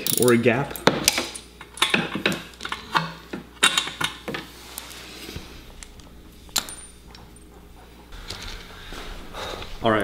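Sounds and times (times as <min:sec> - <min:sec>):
metal parts clinking: 0:00.0 - 0:04.2, 0:06.5 - 0:07.0.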